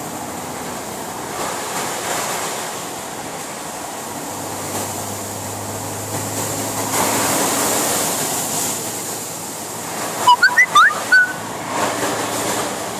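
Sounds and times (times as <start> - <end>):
high chirping squeaks: 10.3 - 11.4.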